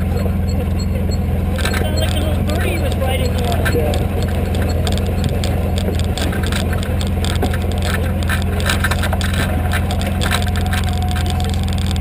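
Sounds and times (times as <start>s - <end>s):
off-road vehicle engine running: 0.0s - 12.0s
vehicle rattling over rocks: 0.0s - 12.0s.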